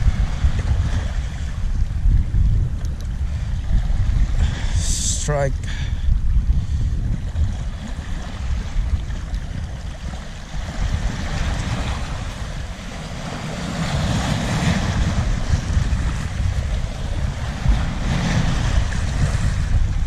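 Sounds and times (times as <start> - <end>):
wind buffeting microphone: 0.0 - 20.0
small waves breaking on rocks: 7.4 - 20.0.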